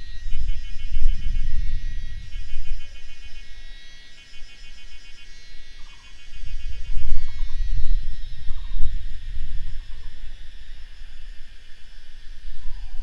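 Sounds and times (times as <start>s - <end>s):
low gusty rumble: 0.0s - 3.6s, 6.3s - 13.0s
insects chirping in pulses: 0.0s - 13.0s.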